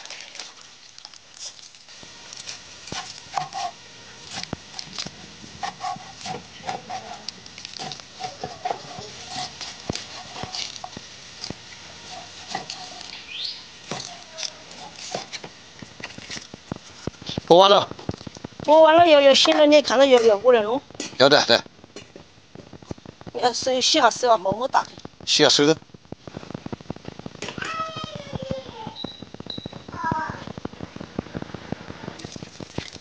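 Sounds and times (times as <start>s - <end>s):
water splashing in a basin: 0.0s - 1.2s.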